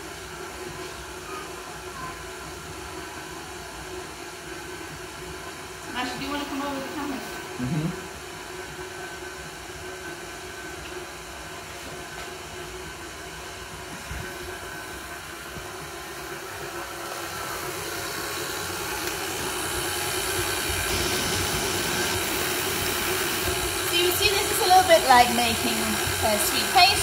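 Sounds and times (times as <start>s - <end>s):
stand mixer motor hum: 0.0s - 27.0s
paddle beating butter and flour: 17.6s - 27.0s.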